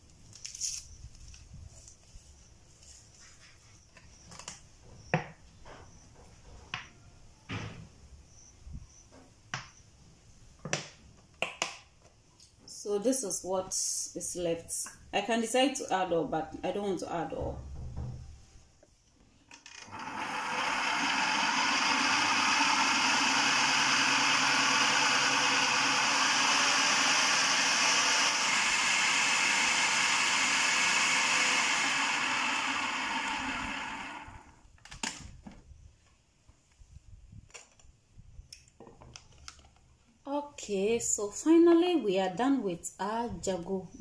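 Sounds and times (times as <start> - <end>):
food processor motor blending: 19.6 - 34.6.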